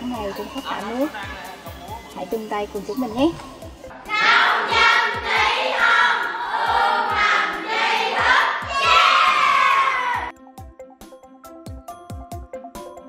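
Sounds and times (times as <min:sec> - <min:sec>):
background music with steady beat: 0:00.0 - 0:13.0
children calling out in unison: 0:04.1 - 0:10.3.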